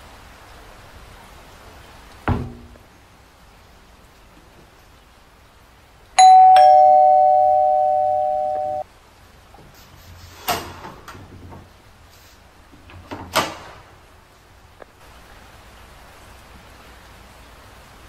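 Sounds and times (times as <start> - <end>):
electronic doorbell chiming: 6.2 - 8.8.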